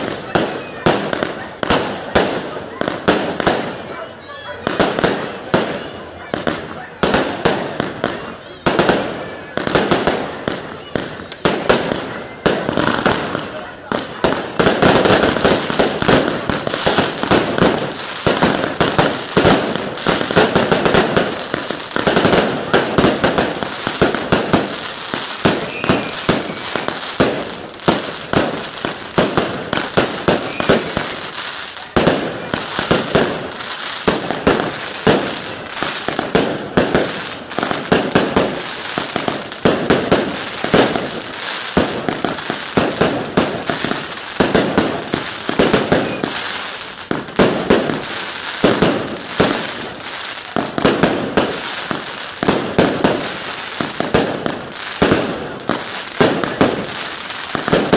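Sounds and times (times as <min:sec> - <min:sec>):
fireworks bangs and crackling: 0:00.0 - 0:57.9.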